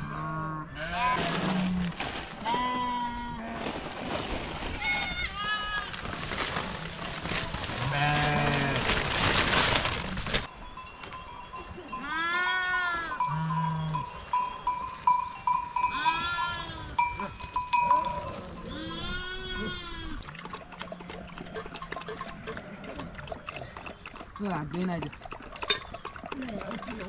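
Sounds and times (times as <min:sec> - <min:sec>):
sheep and goats bleating: 0:00.0 - 0:03.7, 0:04.7 - 0:09.0, 0:11.9 - 0:14.3, 0:15.1 - 0:23.1
small bell ringing: 0:10.5 - 0:12.3, 0:13.0 - 0:18.7.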